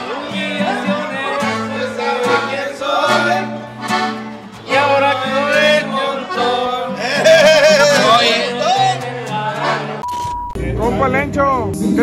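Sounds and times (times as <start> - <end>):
acoustic guitar strumming: 0.0 - 11.4
man singing: 4.6 - 12.0.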